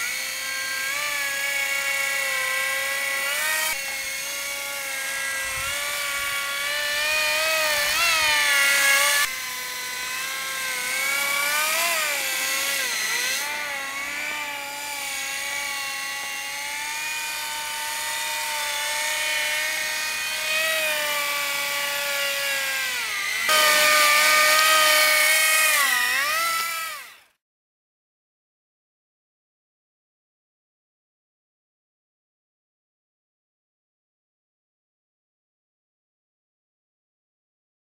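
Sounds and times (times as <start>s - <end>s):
model helicopter rotor whine: 3.4s - 27.4s.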